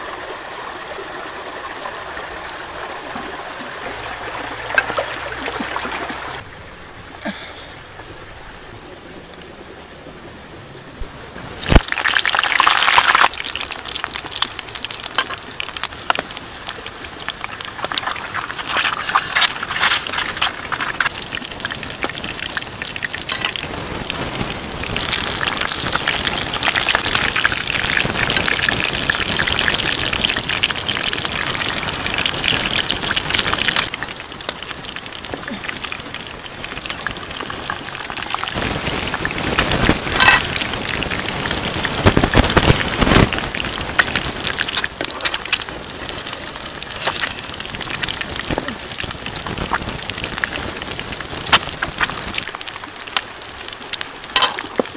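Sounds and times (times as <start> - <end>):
hot oil sizzling and crackling: 11.5 - 54.9.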